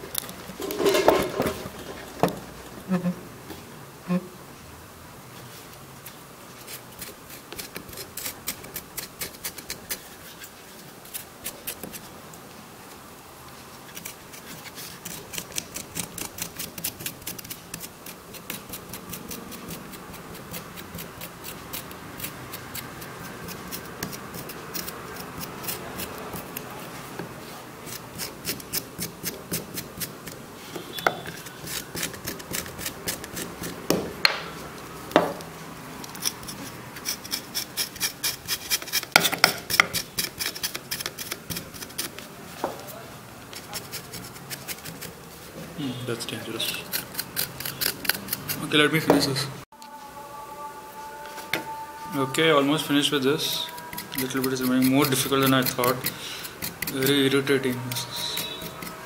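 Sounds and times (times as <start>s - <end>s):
knife scraping ginger skin: 6.6s - 12.1s, 13.8s - 27.2s, 27.8s - 33.9s, 36.0s - 45.4s, 46.3s - 48.8s, 53.0s - 59.0s.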